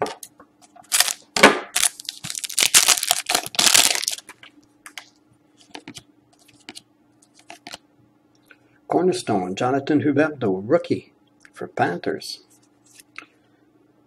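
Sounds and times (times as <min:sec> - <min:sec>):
foil wrapper crinkling: 0:00.8 - 0:04.5.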